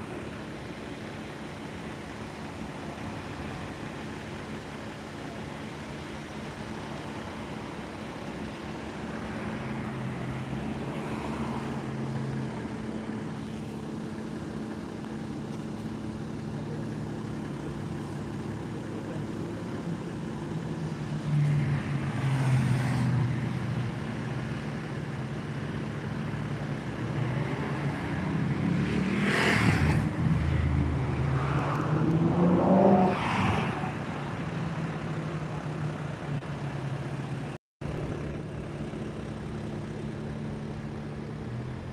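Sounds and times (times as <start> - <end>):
cars passing: 6.2 - 41.9
engine revving: 26.9 - 35.7.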